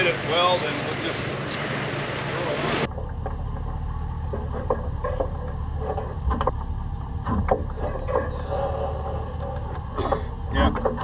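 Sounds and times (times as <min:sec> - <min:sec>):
truck engine running low: 0:00.0 - 0:11.0
knocks and clunks: 0:02.7 - 0:11.0.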